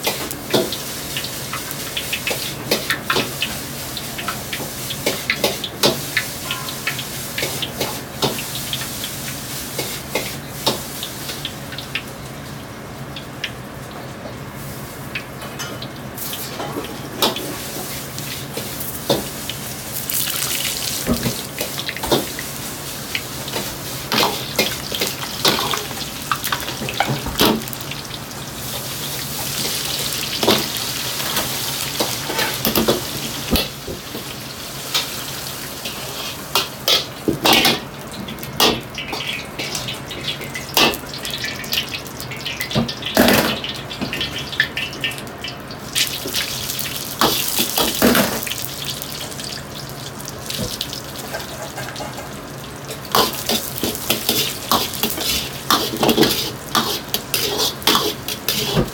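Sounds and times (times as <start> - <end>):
food deep-frying in oil: 0.0 - 58.9
metal ladle clinking on wok: 6.4 - 6.9.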